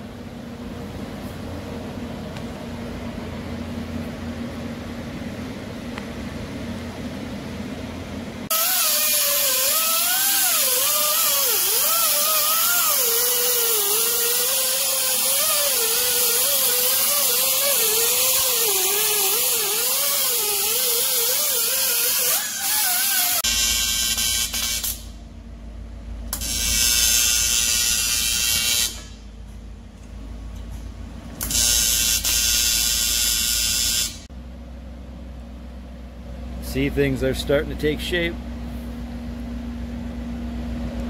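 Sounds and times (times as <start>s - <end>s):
low shop hum: 0.0s - 41.0s
pneumatic grinder whining on metal: 8.5s - 25.1s, 26.3s - 29.2s, 31.4s - 34.2s.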